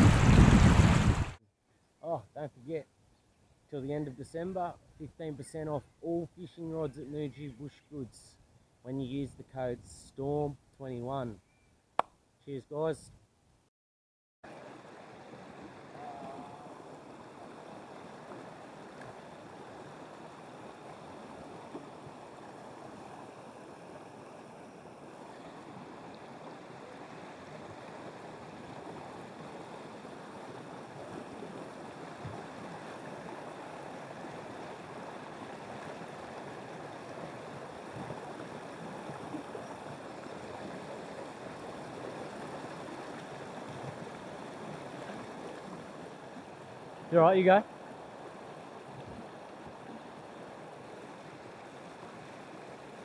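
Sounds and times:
stream water rushing: 0.0 - 1.4, 14.5 - 53.0.

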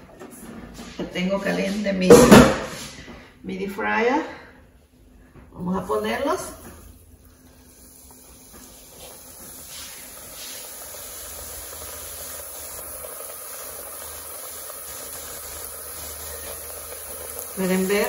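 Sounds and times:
dough deep-frying in oil: 5.6 - 18.0.

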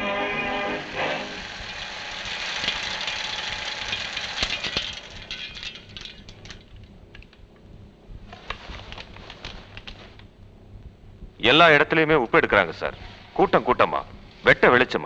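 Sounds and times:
film projector rattling: 0.9 - 7.4
loose film flapping: 0.9 - 10.5.

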